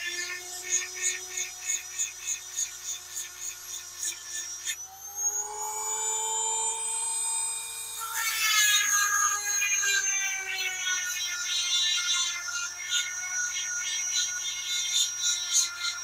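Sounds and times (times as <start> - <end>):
chain sharpener grinder whining: 0.0 - 16.0.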